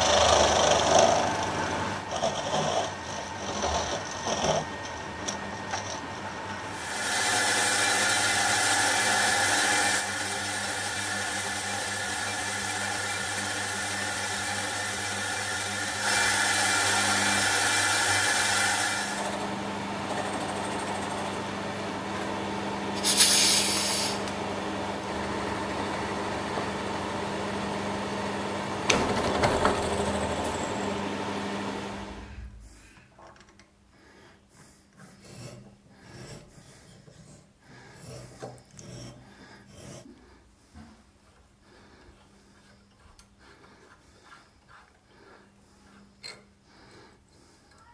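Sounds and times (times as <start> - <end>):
milling machine cutting metal: 6.8 - 21.2.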